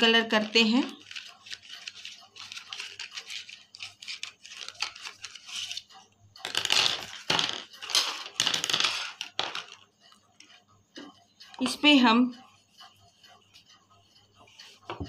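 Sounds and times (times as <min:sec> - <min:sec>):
wooden pencils clattering: 0:00.4 - 0:09.9.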